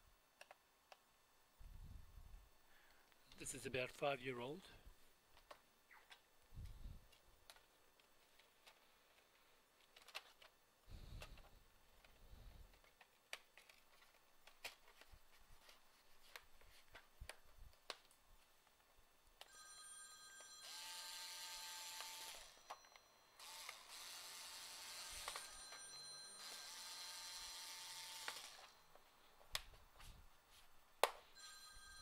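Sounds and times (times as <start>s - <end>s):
high ringing tone over hiss: 19.5s - 23.9s, 24.7s - 29.4s, 31.4s - 32.0s.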